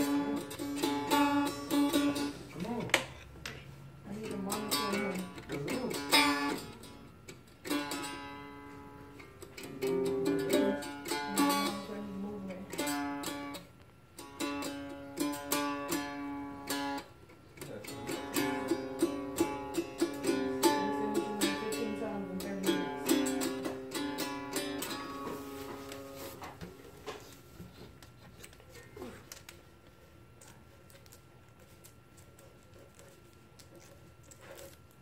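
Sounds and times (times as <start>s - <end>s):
acoustic guitar strumming: 0.0s - 2.9s, 4.1s - 26.7s.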